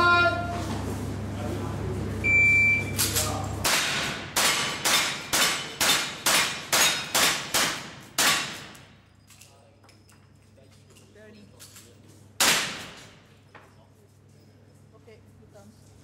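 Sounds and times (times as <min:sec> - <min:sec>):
rifle shots echoing indoors: 0:03.6 - 0:08.8, 0:12.4 - 0:13.1.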